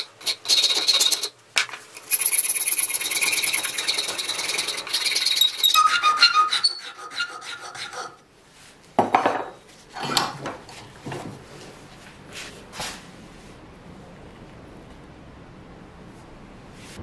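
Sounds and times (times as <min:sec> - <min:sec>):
file rasping on wood: 0:02.4 - 0:08.2
wood scraping and knocking on vise: 0:09.0 - 0:11.6.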